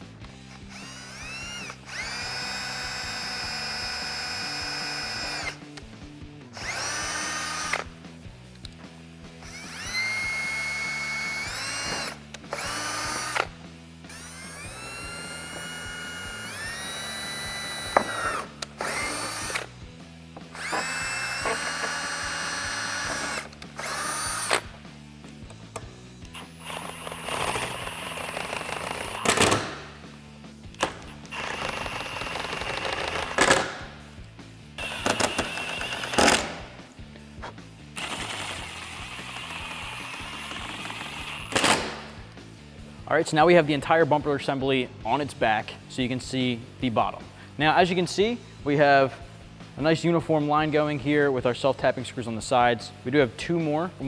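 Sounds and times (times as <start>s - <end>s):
cordless drill whining: 0.2s - 5.6s, 6.5s - 8.0s, 9.3s - 13.5s, 14.1s - 19.7s, 20.4s - 24.7s, 26.3s - 29.8s, 30.8s - 33.8s, 34.8s - 36.6s, 38.0s - 42.0s.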